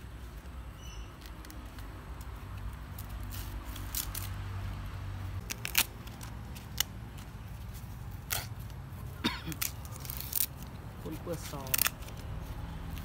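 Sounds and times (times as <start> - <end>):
corn husks tearing: 1.2 - 4.4, 5.4 - 8.8, 9.5 - 13.0.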